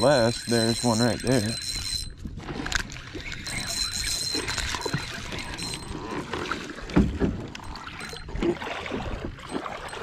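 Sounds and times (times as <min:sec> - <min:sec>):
rustling and knocks on kayak hull: 0:04.4 - 0:09.7.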